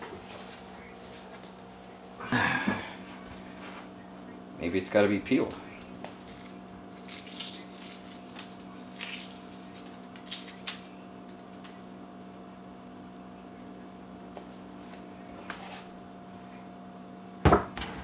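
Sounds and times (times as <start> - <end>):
steady low hum: 0.0 - 18.0
eggshell crackling: 5.3 - 13.4.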